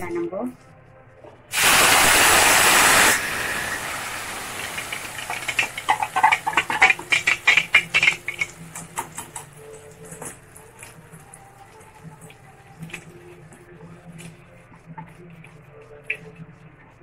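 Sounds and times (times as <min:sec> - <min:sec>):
paste sizzling in hot oil: 0:01.5 - 0:10.9.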